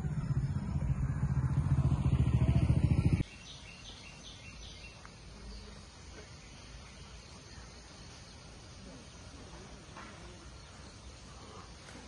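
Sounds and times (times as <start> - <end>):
small engine running: 0.0 - 3.2
bird chirps: 0.0 - 9.4.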